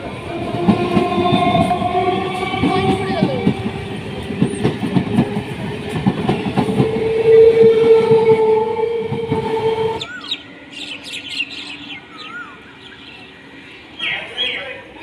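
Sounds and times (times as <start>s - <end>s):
train wheels clattering over rail joints: 0.5s - 7.4s.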